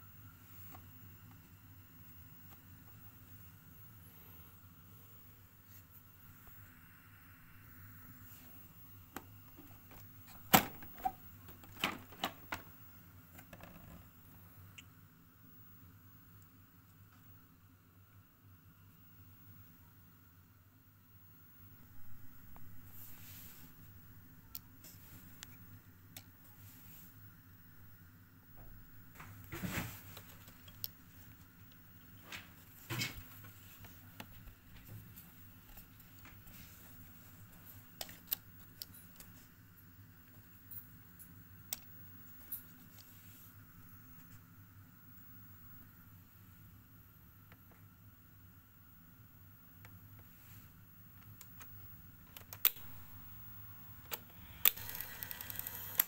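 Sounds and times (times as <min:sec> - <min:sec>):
faint hum: 0:00.0 - 0:56.0
handling knocks and clicks on vcr case: 0:09.2 - 0:12.7.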